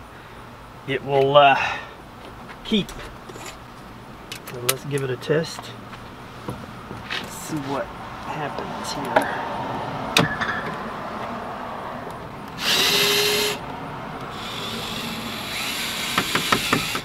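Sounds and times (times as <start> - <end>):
cordless drill motor spinning: 12.5 - 13.6, 14.2 - 17.0.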